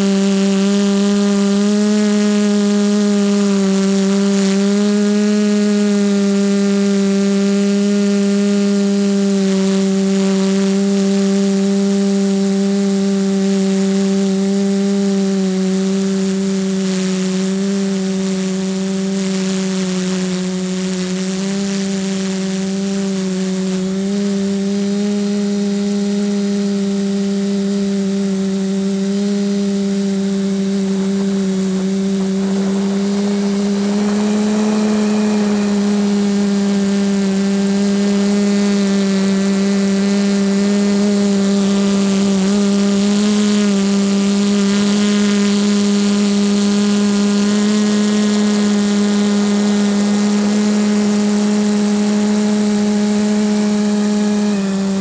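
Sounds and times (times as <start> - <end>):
drone motors buzzing: 0.0 - 55.0.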